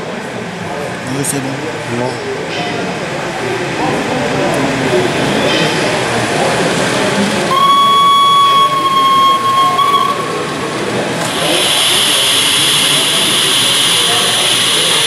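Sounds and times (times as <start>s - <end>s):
steam hissing: 7.5s - 15.0s
steam locomotive whistle: 7.5s - 15.0s.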